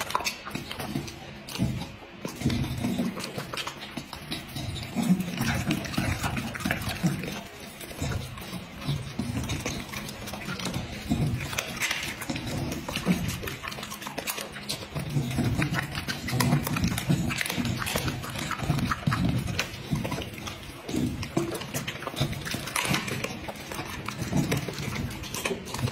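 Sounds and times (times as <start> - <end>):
dog chewing and smacking food: 0.0 - 25.9.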